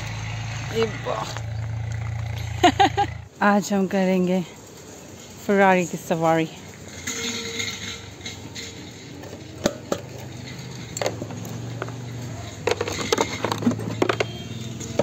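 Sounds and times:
plastic knocks and rattles: 0:12.6 - 0:15.0.

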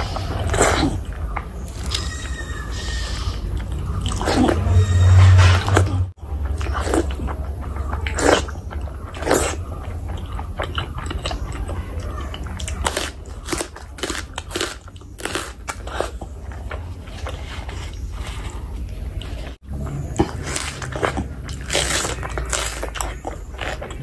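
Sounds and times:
wet chewing and smacking: 0:00.0 - 0:24.0
crunching bites of raw onion: 0:01.6 - 0:02.4, 0:12.6 - 0:16.2.

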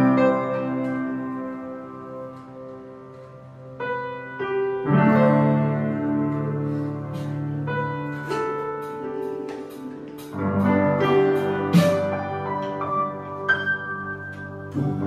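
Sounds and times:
piano: 0:00.0 - 0:15.0
electronic drum kit: 0:08.2 - 0:12.9.

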